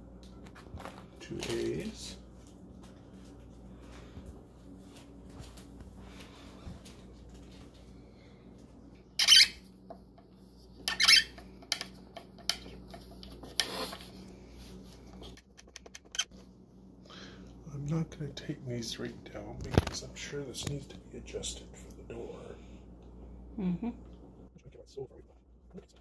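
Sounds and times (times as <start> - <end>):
screw squeaking: 9.2 - 9.6, 10.8 - 11.4, 15.6 - 16.3.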